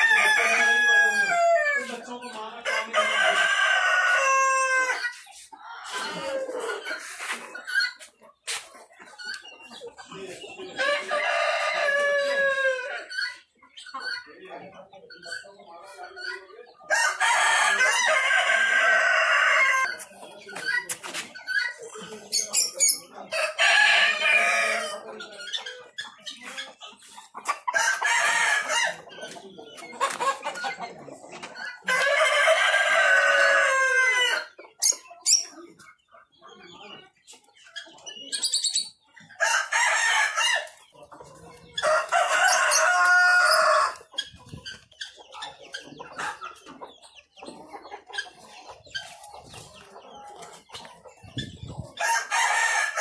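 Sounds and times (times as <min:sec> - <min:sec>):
roosters crowing: 0:00.0 - 0:02.0, 0:02.6 - 0:07.4, 0:10.7 - 0:13.3, 0:16.9 - 0:20.2, 0:23.3 - 0:25.2, 0:27.4 - 0:29.3, 0:31.7 - 0:35.4, 0:39.2 - 0:44.2, 0:51.8 - 0:53.0
chickens clucking: 0:00.0 - 0:53.0.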